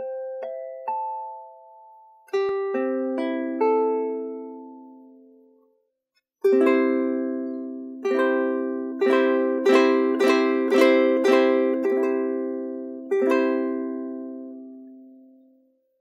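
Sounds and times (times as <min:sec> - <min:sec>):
ukulele strumming: 0:02.3 - 0:05.2, 0:06.4 - 0:15.2.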